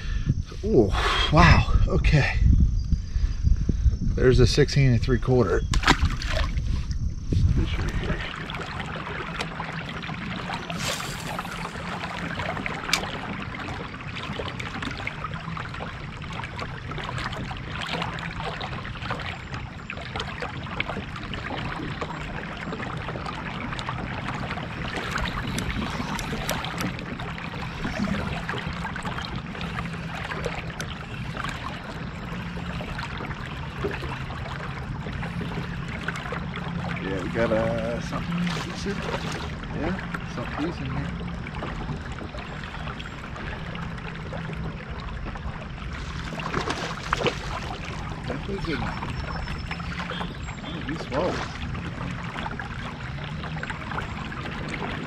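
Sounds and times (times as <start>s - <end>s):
low steady hum: 0.0s - 55.0s
river water rushing: 45.9s - 49.2s.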